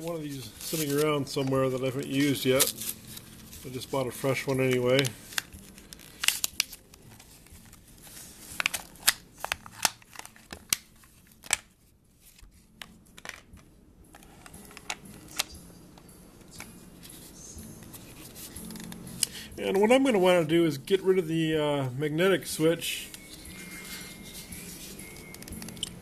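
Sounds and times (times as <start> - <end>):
cardboard packaging rustling: 0.0 - 15.5, 16.6 - 19.0.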